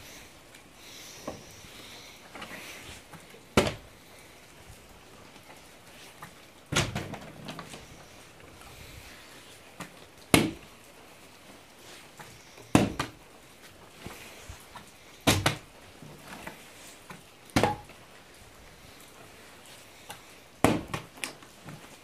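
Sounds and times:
plastic bottle thudding on wood: 3.6s - 3.8s, 6.7s - 7.2s, 10.3s - 10.6s, 12.7s - 13.2s, 15.2s - 15.6s, 17.6s - 17.9s, 20.6s - 21.1s.

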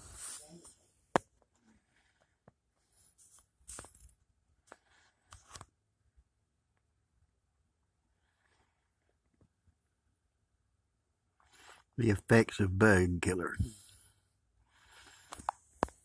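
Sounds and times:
soft rustles and scrapes: 0.0s - 5.7s.

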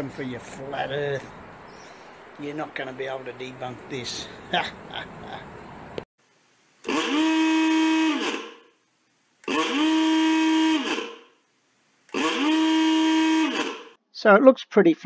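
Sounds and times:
buzzing warning alarm: 6.8s - 8.7s, 9.4s - 11.4s, 12.1s - 14.0s.

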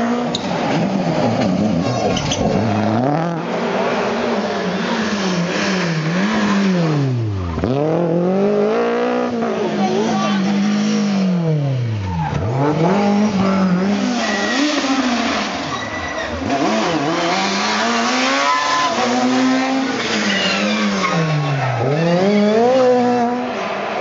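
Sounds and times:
rally car engines accelerating: 0.0s - 24.0s
tyres squealing: 13.8s - 22.9s.

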